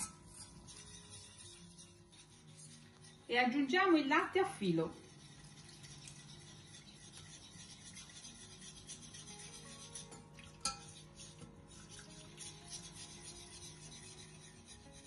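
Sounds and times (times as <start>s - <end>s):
whisk scraping a steel saucepan: 0.0s - 15.0s.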